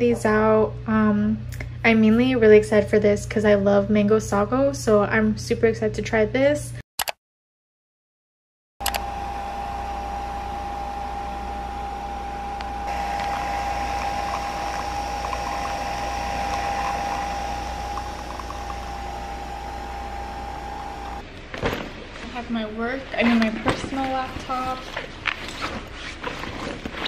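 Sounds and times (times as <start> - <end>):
coffee machine motor humming: 8.8 - 21.2
coffee streaming into a glass: 12.8 - 21.2.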